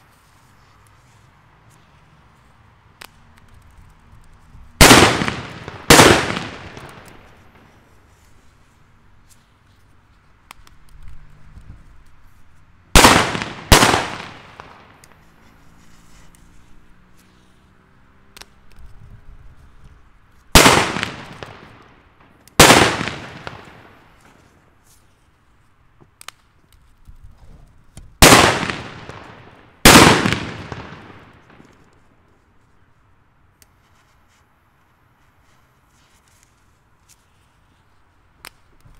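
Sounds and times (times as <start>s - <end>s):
firecracker bangs echoing: 4.8s - 7.8s, 12.9s - 15.1s, 20.5s - 24.4s, 28.2s - 31.8s.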